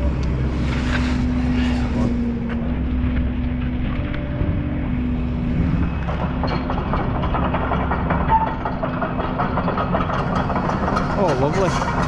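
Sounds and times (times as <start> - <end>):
knocks and scrapes of logs: 0.0 - 4.5
heavy machinery engine idling: 0.0 - 12.0.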